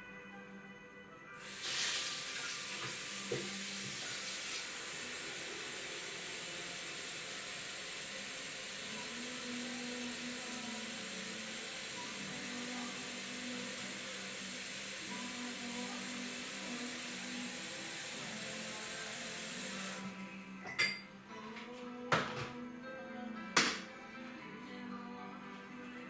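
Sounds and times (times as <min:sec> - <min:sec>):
tap running into sink: 0:01.6 - 0:04.7, 0:22.1 - 0:22.6.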